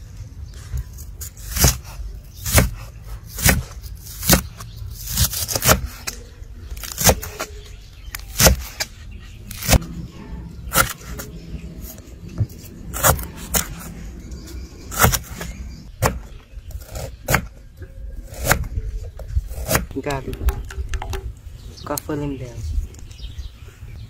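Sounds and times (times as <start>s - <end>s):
knife chopping on wooden board: 1.5s - 6.1s.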